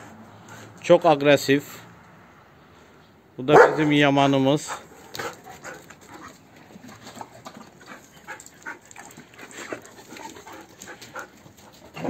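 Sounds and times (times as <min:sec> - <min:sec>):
dog paws scuffing on concrete: 0:04.6 - 0:12.0.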